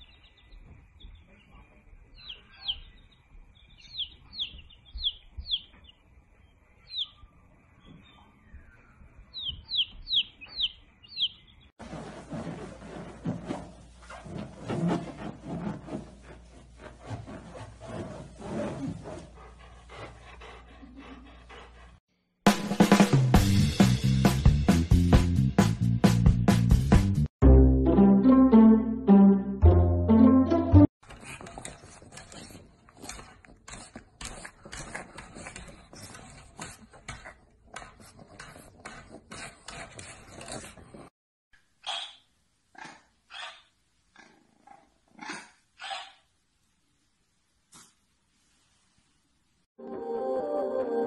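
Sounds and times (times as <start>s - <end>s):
dog rubbing on balloon: 11.8s - 20.2s, 31.0s - 41.1s
loud music with drum beat: 22.5s - 27.2s.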